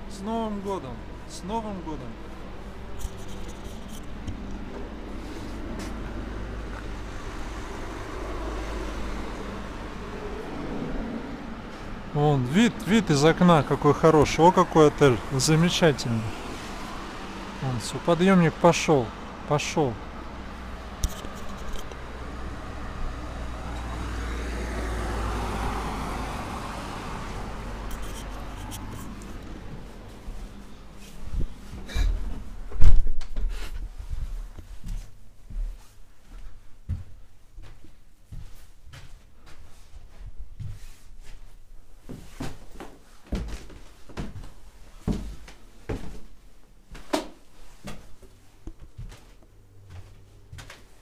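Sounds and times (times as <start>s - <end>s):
vehicle passing with low rumble: 0.9s - 33.1s.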